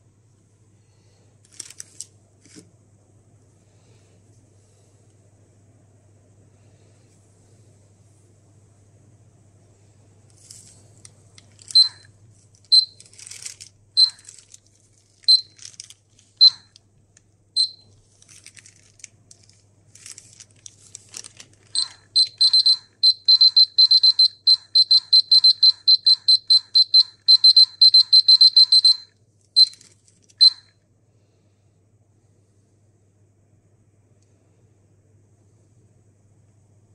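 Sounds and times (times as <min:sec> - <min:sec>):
scratchy handling noises: 0:01.4 - 0:02.7, 0:10.3 - 0:16.4, 0:17.9 - 0:22.0
dosimeter short high beeps: 0:11.7 - 0:12.1, 0:12.7 - 0:13.0, 0:14.0 - 0:14.2, 0:15.3 - 0:15.6, 0:16.4 - 0:16.7, 0:17.6 - 0:17.9, 0:21.8 - 0:29.8, 0:30.4 - 0:30.8.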